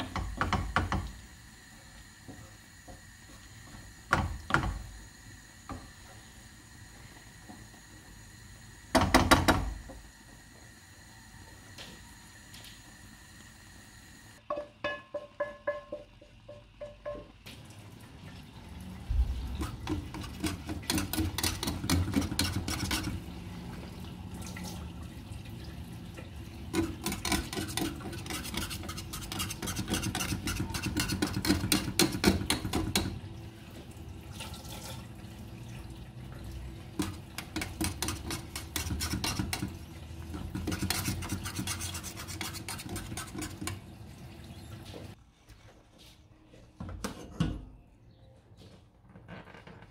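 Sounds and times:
metal utensil tapping cookware: 14.5 - 17.4
utensil scraping and stirring: 19.2 - 23.4, 26.7 - 33.1, 37.0 - 44.0.

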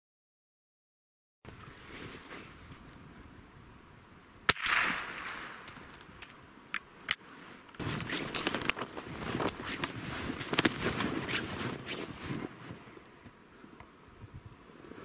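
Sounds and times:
gunshot with echo: 4.5 - 5.6
footsteps crunching in snow: 7.8 - 13.0.

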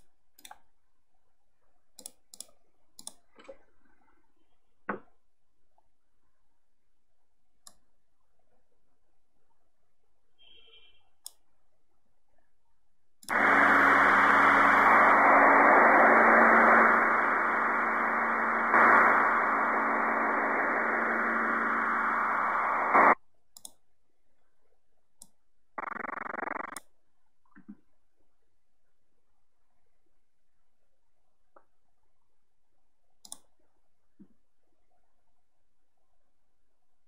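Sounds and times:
radio static hiss: 13.3 - 23.2, 25.8 - 26.8.

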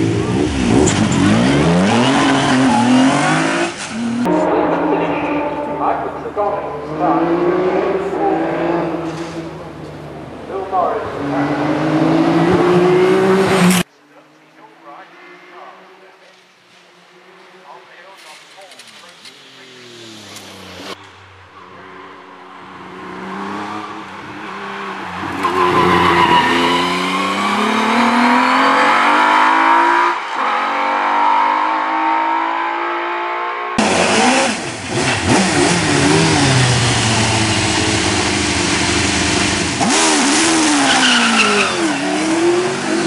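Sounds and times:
car revving past: 0.0 - 13.9, 19.2 - 43.0
racing car engine at full throttle: 0.0 - 16.4, 17.1 - 43.0.

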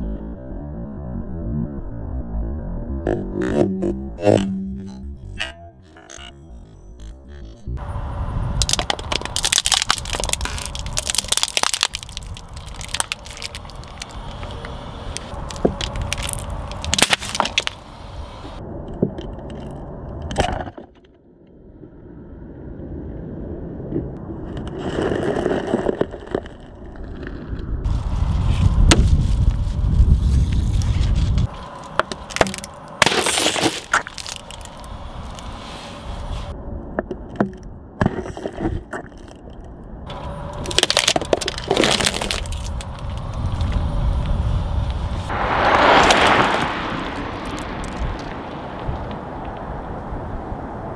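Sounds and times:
plastic bottle crushed by tyre: 8.6 - 14.5, 15.3 - 17.8, 31.9 - 34.8, 40.6 - 42.9
plastic cups cracking under tyre: 8.6 - 17.8, 31.4 - 35.5, 40.5 - 43.8, 45.6 - 49.6.

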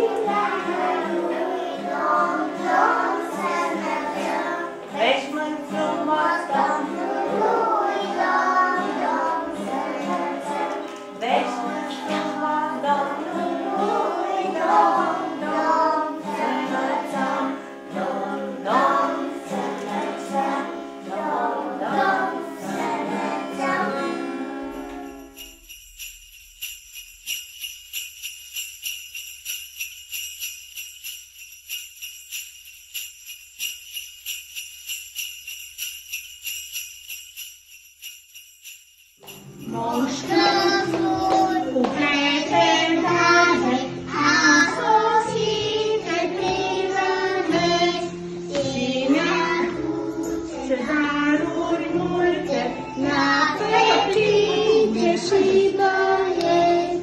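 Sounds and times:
children singing a carol: 0.0 - 25.2, 39.5 - 57.0
sleigh bells jingling: 22.6 - 41.8.

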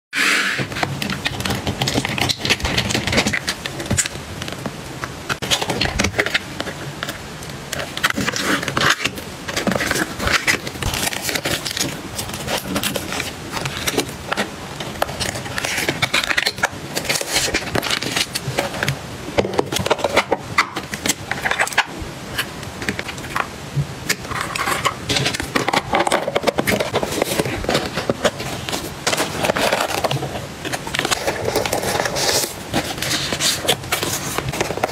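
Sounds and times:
paper and card rustling: 0.2 - 34.9.

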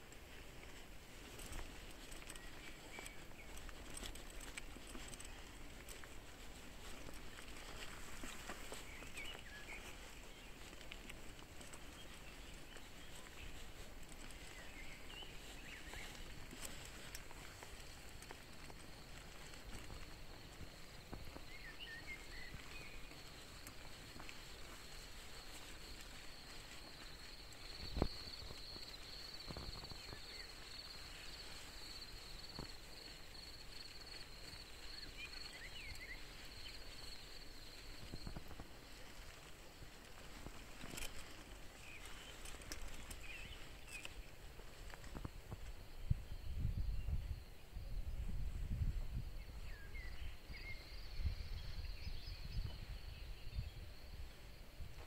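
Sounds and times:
high-pitched insect trill: 11.9 - 55.0
wind on microphone: 45.0 - 55.0.

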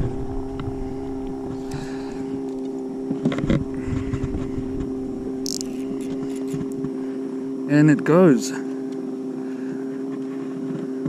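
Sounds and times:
electric trolling motor humming: 0.0 - 11.0
fishing reel clicks: 5.4 - 6.8.

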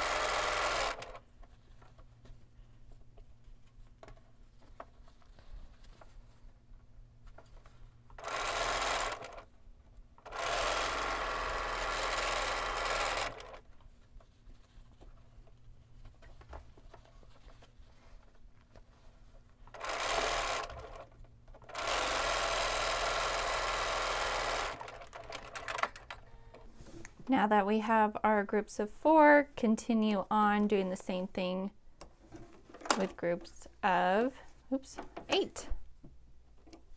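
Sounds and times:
sewing machine stitching: 0.0 - 1.3, 8.2 - 9.5, 10.2 - 13.7, 19.6 - 26.6.

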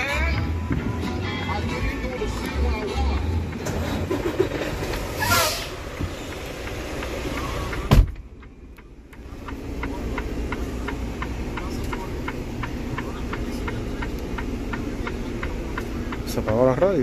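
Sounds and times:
diesel truck engine starting and idling: 0.0 - 17.0
regular light ticking: 6.0 - 17.0.

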